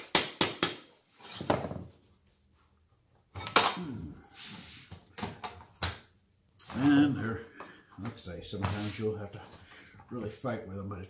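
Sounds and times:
flooring plank scraping: 0:01.1 - 0:02.0, 0:08.6 - 0:09.1.

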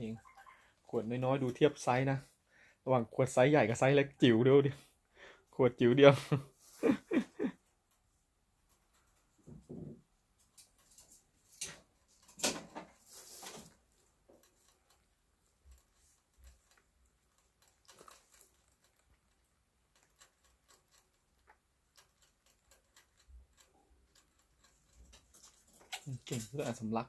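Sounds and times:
rabbit licking metal spout: 0:07.6 - 0:26.8
rustles and knocks: 0:07.9 - 0:14.8.

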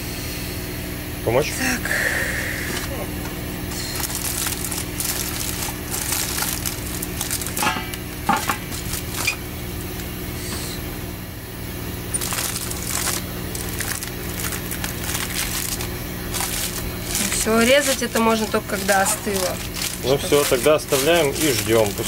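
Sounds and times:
steady low hum: 0:00.0 - 0:22.0
aluminium foil crinkling: 0:03.6 - 0:10.1, 0:12.1 - 0:22.0.

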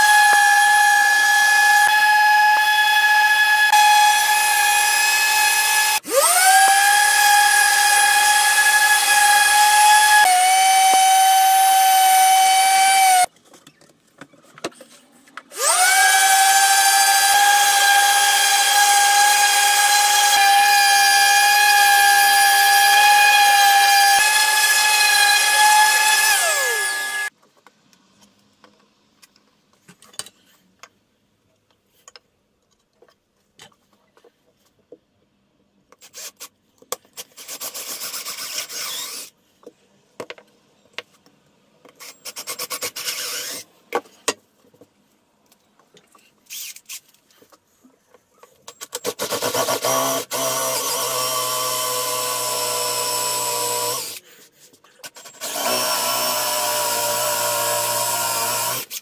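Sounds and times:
cordless drill boring into wood: 0:00.0 - 0:13.3, 0:15.6 - 0:27.3, 0:37.4 - 0:39.3, 0:42.0 - 0:43.6, 0:49.0 - 0:54.2, 0:55.1 - 0:59.0
orbital sander whining: 0:15.6 - 0:27.3.

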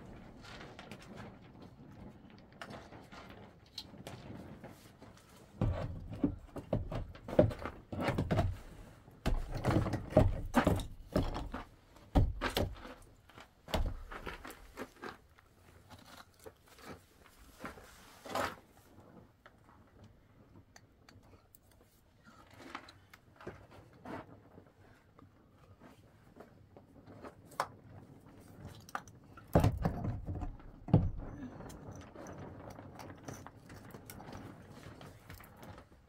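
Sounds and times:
knocks thuds and crunching handling: 0:05.6 - 0:13.0.

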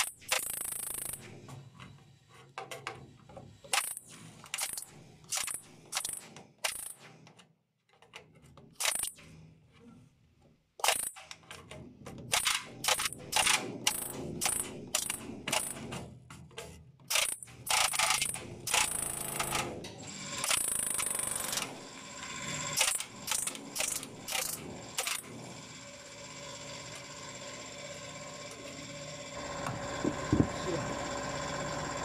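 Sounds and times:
pneumatic air hammer bursts: 0:00.0 - 0:01.5, 0:03.6 - 0:07.3, 0:08.8 - 0:09.3, 0:10.8 - 0:11.4, 0:12.3 - 0:16.1, 0:17.1 - 0:25.5.

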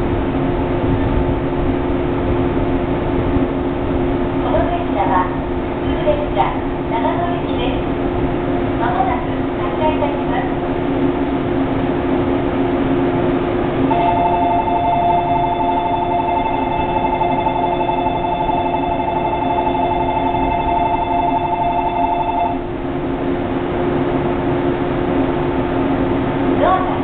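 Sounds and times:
steady low hum: 0:00.0 - 0:27.0
electronic bell ringing: 0:13.9 - 0:22.8.

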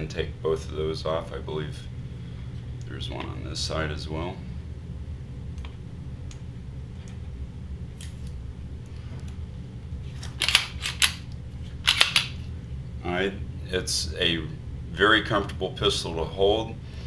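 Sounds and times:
pistol clicks and clacks: 0:11.9 - 0:12.4.

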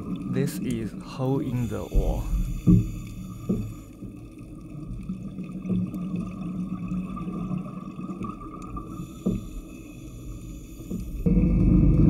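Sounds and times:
water rushing: 0:00.0 - 0:03.9
underwater scooter motor humming: 0:00.0 - 0:12.0.

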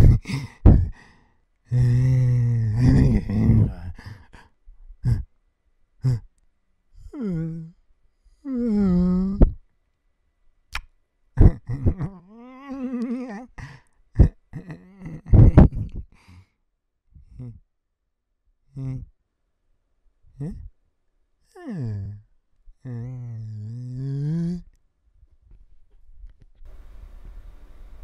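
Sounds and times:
man humming: 0:00.0 - 0:01.1, 0:01.7 - 0:05.3, 0:06.0 - 0:06.4, 0:07.0 - 0:07.8, 0:08.4 - 0:09.6, 0:11.4 - 0:16.2, 0:17.2 - 0:17.7, 0:18.7 - 0:19.2, 0:20.3 - 0:20.8, 0:21.5 - 0:24.8
man sighing and groaning: 0:00.0 - 0:05.3, 0:06.0 - 0:06.3, 0:07.0 - 0:07.8, 0:08.4 - 0:09.6, 0:11.4 - 0:16.4, 0:17.2 - 0:17.6, 0:18.7 - 0:19.1, 0:20.4 - 0:20.7, 0:21.5 - 0:22.2, 0:22.8 - 0:24.7.

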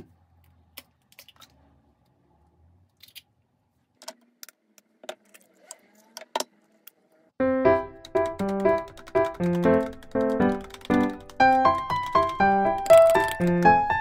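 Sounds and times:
keyboard music: 0:07.4 - 0:14.0.

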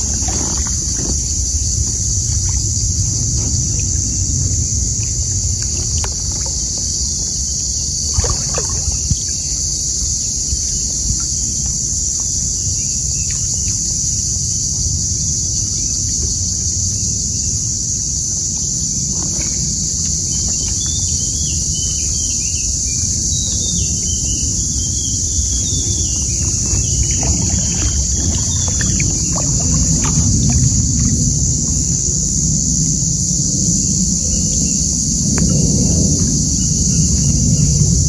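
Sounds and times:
low rumble: 0:00.0 - 0:09.6, 0:24.5 - 0:38.0
paddle knocks and splashes: 0:00.0 - 0:13.9, 0:19.1 - 0:22.3, 0:24.7 - 0:32.7, 0:35.2 - 0:38.0
high-pitched insect drone: 0:00.0 - 0:38.0.

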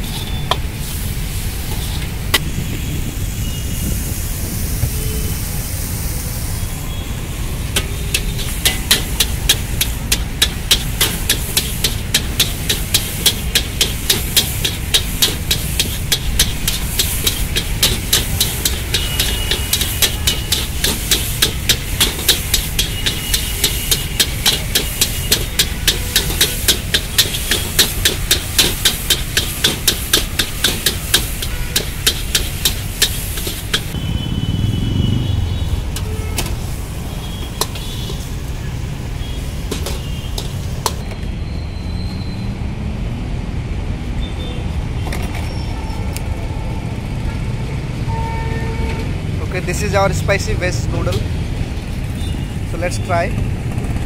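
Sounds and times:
gas burner rushing: 0:00.0 - 0:41.2
metal ladle clanging in wok: 0:07.8 - 0:34.0.

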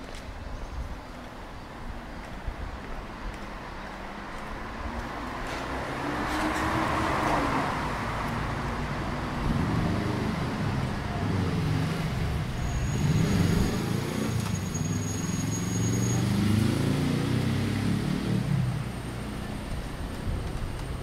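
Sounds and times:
street traffic noise: 0:00.0 - 0:21.0
bus engine running: 0:18.4 - 0:21.0.

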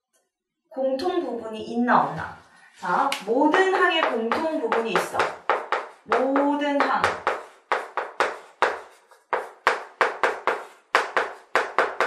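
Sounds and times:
writing taps on a board: 0:03.5 - 0:12.0.

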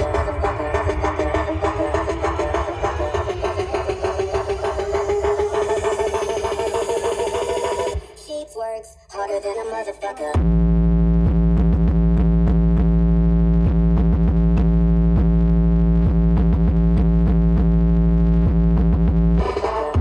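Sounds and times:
falling pitch sweeps: 0:00.0 - 0:08.0
loud electronic music with sub-bass: 0:00.0 - 0:08.4, 0:09.2 - 0:20.0.

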